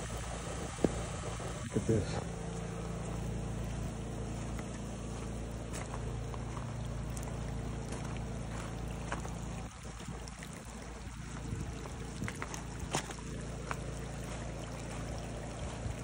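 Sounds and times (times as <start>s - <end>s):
rainwater trickling over stones: 0.0s - 16.0s
footsteps on gravel: 4.2s - 9.7s, 11.4s - 15.8s
wind buffeting microphone: 9.6s - 13.2s.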